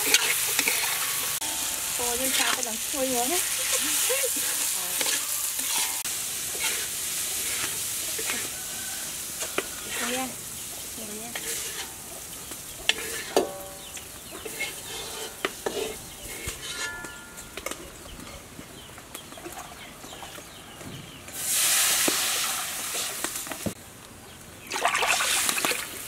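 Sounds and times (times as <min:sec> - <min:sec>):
metal spoons scraping bowls: 0:00.0 - 0:08.6, 0:09.4 - 0:10.3, 0:11.3 - 0:12.1, 0:12.7 - 0:18.5
sizzling hiss from wok: 0:00.0 - 0:16.7, 0:21.3 - 0:23.8.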